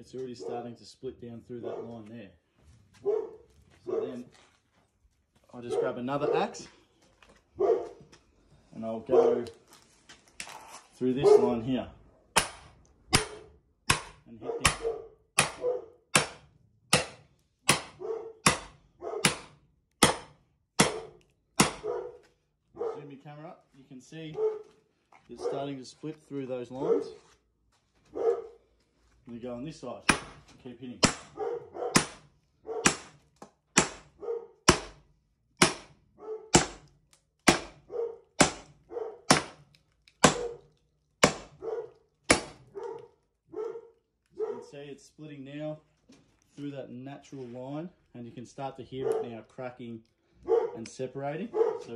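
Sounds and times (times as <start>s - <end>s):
dog barking: 0.4s - 0.7s, 1.6s - 2.0s, 3.0s - 4.3s, 5.6s - 6.7s, 7.5s - 8.1s, 9.0s - 9.5s, 11.2s - 11.7s, 14.4s - 16.0s, 17.9s - 19.4s, 20.9s - 23.2s, 24.3s - 24.8s, 25.4s - 25.8s, 26.8s - 27.2s, 28.1s - 28.6s, 31.3s - 33.0s, 34.1s - 34.6s, 36.2s - 36.6s, 37.8s - 39.4s, 40.3s - 40.7s, 41.5s - 42.1s, 42.7s - 44.8s, 49.0s - 49.4s, 50.4s - 51.9s
sledgehammer striking axe head: 12.3s - 21.9s, 30.0s - 37.8s, 38.4s - 40.6s, 41.2s - 41.6s, 42.3s - 42.6s.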